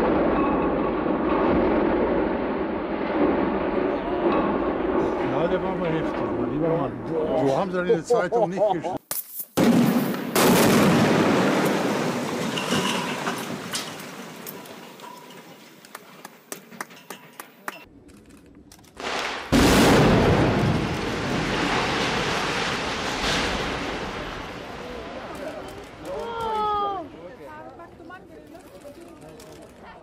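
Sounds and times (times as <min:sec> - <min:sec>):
demolition blast: 0:00.0 - 0:07.1, 0:09.6 - 0:15.6, 0:19.0 - 0:26.9
collapse rumble: 0:00.0 - 0:07.8, 0:19.0 - 0:26.9
crackles: 0:09.0 - 0:30.0.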